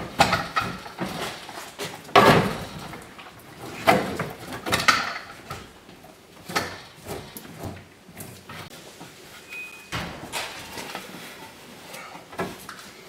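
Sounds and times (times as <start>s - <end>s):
brief squeak: 9.5s - 10.0s.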